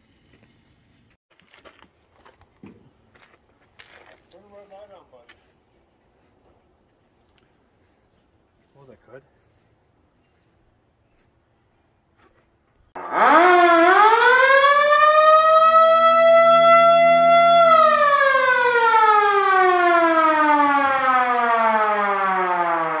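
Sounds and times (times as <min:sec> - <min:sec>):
mechanical siren wailing: 0:13.0 - 0:23.0.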